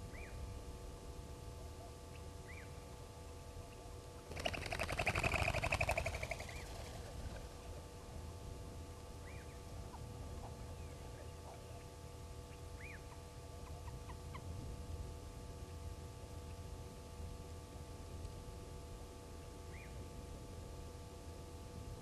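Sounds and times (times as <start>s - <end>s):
bird trilling call: 5.3s - 7.3s.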